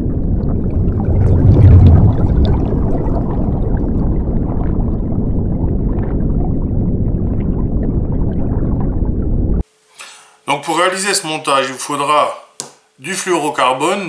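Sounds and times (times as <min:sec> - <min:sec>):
muffled underwater rumble: 0:00.0 - 0:09.6
water bubbling: 0:00.0 - 0:09.6.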